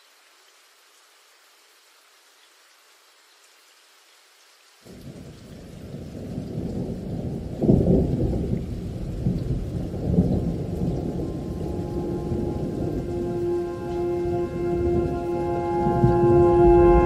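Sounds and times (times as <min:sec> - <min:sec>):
rain: 0:00.0 - 0:17.0
thunder rumbling: 0:05.9 - 0:17.0
sustained music notes: 0:11.0 - 0:17.0.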